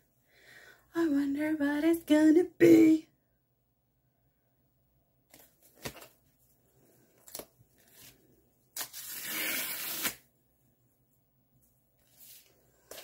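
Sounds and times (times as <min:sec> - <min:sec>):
paper tearing: 0:08.8 - 0:10.3.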